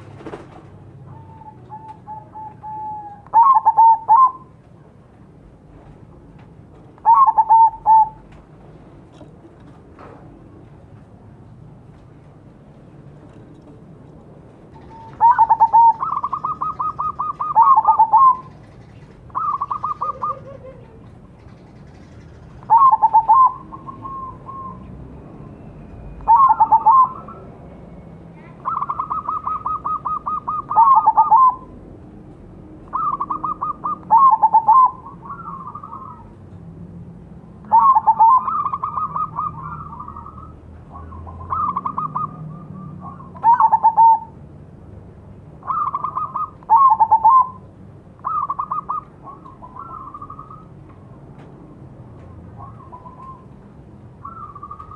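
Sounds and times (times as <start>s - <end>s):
dove cooing: 0.0s - 4.6s, 7.0s - 8.3s, 14.7s - 25.0s, 26.2s - 27.5s, 28.4s - 31.8s, 32.8s - 36.4s, 37.6s - 44.4s, 45.6s - 50.8s, 52.5s - 53.5s, 54.2s - 54.9s.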